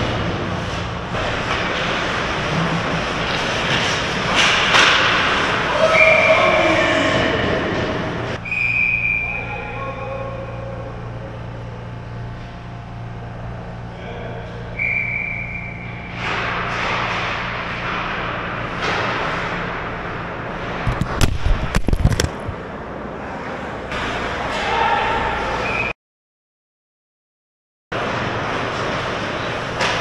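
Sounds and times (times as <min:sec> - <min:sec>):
ice rink hall hum: 0:00.0 - 0:25.9, 0:28.0 - 0:30.0
loud knocks and rattles: 0:20.8 - 0:22.6.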